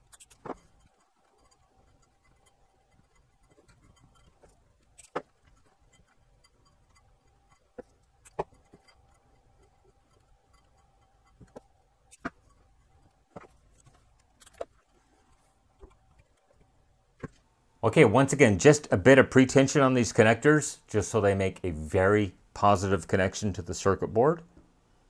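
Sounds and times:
light clicks and taps: 0:00.0 - 0:17.4
faint steady thin tone: 0:00.0 - 0:24.4.

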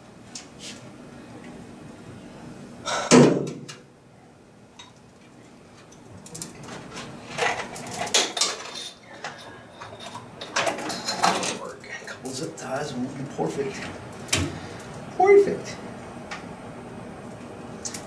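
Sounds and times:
metal tools clanking: 0:07.3 - 0:11.7.

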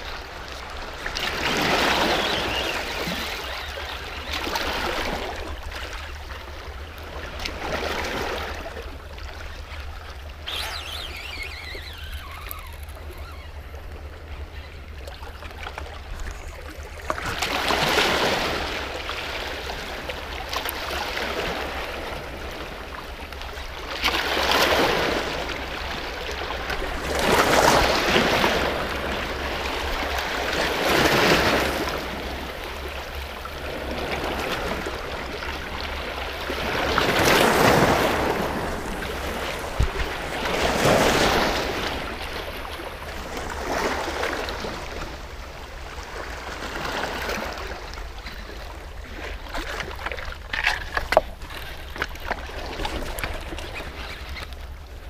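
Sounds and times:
waves washing against rocks: 0:15.7 - 0:23.0, 0:23.7 - 0:45.4.

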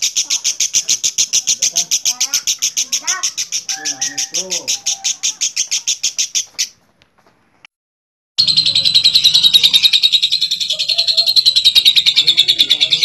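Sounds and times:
lovebirds chattering trill: 0:00.0 - 0:06.8, 0:08.4 - 0:13.0.

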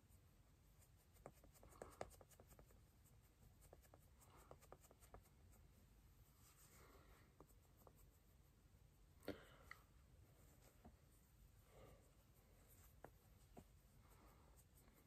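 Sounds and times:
makeup sponge dabbing face: 0:00.0 - 0:08.9.

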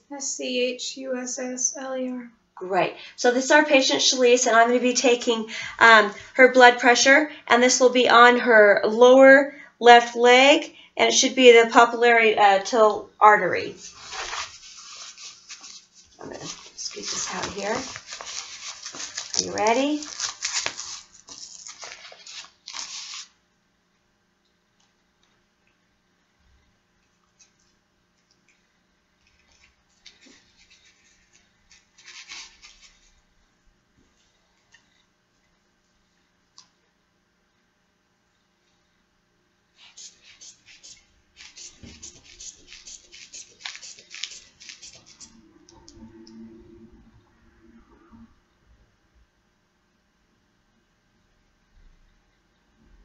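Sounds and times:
velcro strap ripping: 0:16.6 - 0:23.4, 0:31.7 - 0:33.0, 0:41.4 - 0:45.3.

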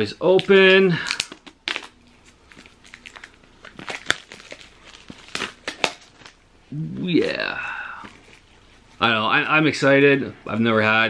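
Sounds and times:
wrapping tearing and crinkling: 0:00.3 - 0:06.4, 0:08.0 - 0:09.0.

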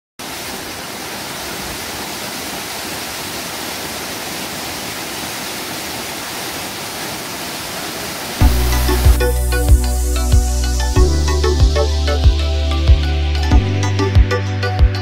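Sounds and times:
waterfall rushing onto rock: 0:00.2 - 0:09.2.

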